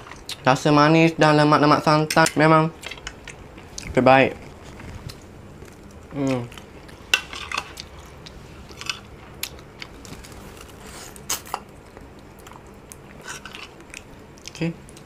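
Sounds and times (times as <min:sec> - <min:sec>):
person humming: 0:06.1 - 0:06.6.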